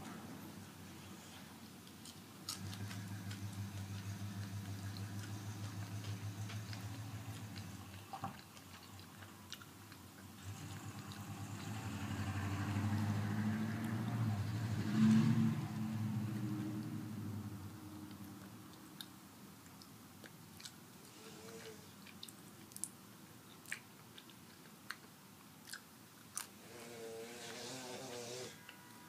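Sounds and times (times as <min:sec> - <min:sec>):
low steady hum: 0:00.0 - 0:27.6
chewing crunchy chips: 0:01.6 - 0:14.0, 0:18.0 - 0:26.6.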